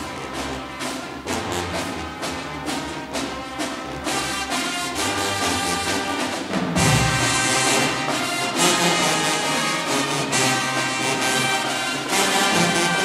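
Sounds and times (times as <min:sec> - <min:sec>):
brass held chords: 0:00.0 - 0:13.0
marching band playing: 0:00.0 - 0:13.0
steady drum strokes: 0:00.0 - 0:13.0
heavy low drum hit: 0:06.6 - 0:08.1.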